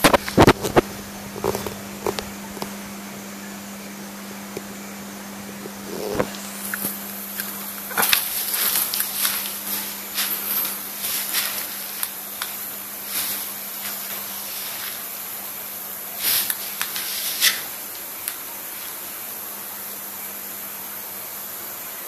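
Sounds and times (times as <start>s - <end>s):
low steady hum: 0.0s - 22.0s
steady high hiss: 0.0s - 22.0s
short rustling bursts: 8.0s - 12.1s.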